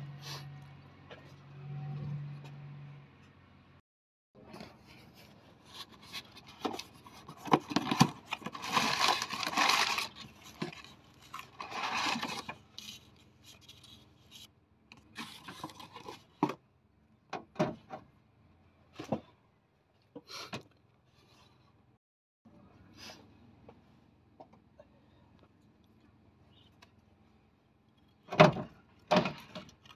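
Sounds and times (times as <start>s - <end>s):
cardboard scraping and rustling: 4.5s - 14.5s.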